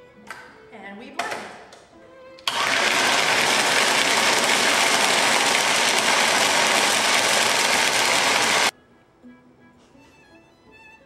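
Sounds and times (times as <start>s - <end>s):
blender crushing ice: 2.4s - 8.7s.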